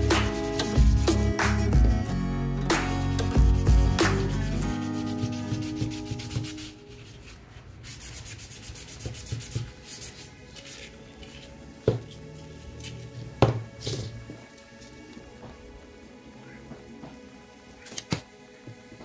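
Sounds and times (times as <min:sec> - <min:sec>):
glove rubbing plastic pipe: 0:03.6 - 0:15.0.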